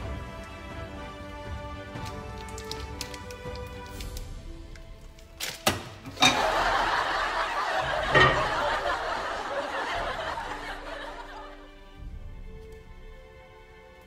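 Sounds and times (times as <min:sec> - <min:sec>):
studio audience laughing: 0:06.2 - 0:11.7.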